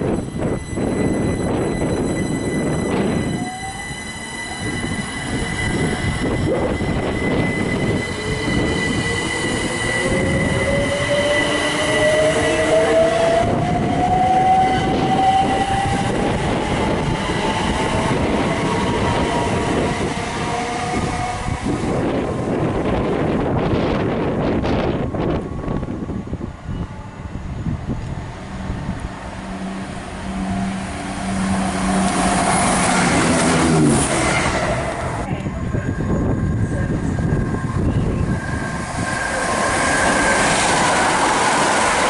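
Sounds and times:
electric train motor whine: 0:00.0 - 0:42.0
wheels rumbling on rail: 0:00.0 - 0:42.0
high whistle: 0:00.1 - 0:16.3.

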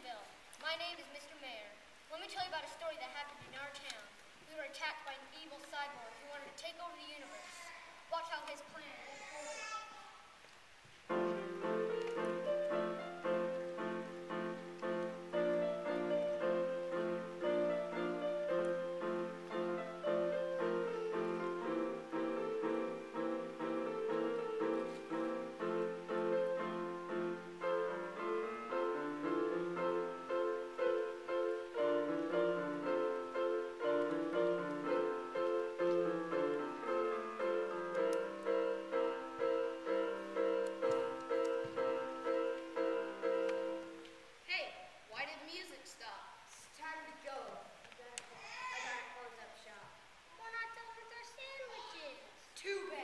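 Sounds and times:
piano keyboard music: 0:11.1 - 0:44.2.

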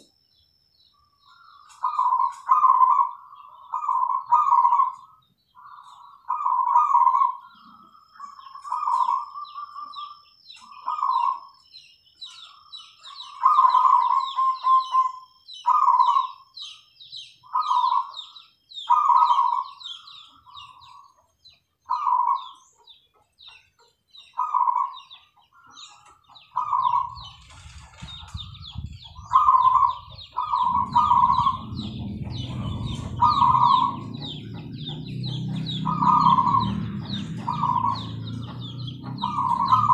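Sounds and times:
small birds chirping: 0:00.0 - 0:39.9
doves cooing: 0:01.3 - 0:11.5, 0:12.3 - 0:16.4, 0:17.4 - 0:21.2, 0:21.9 - 0:22.6, 0:24.4 - 0:39.9
low rumble: 0:28.0 - 0:39.9.

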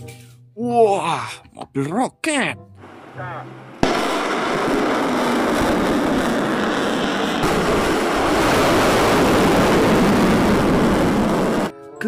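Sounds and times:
rocket motor roaring: 0:02.8 - 0:11.7.

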